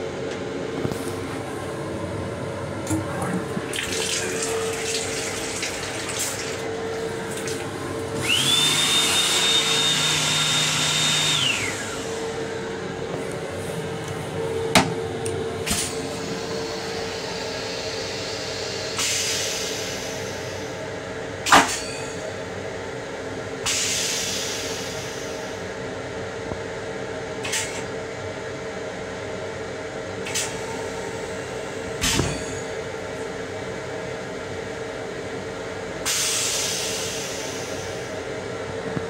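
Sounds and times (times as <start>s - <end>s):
steady train hum: 0.0s - 39.0s.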